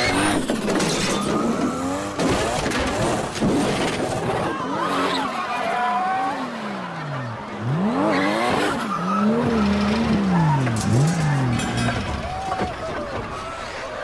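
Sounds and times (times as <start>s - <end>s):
car engines revving hard: 0.0s - 13.4s
tyres squealing: 7.6s - 14.0s.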